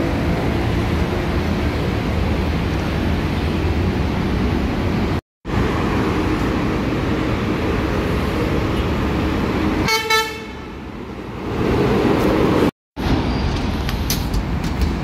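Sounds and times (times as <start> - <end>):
bus passing close: 0.0 - 15.0
city road traffic: 0.0 - 15.0
short high vehicle horn: 9.8 - 10.6.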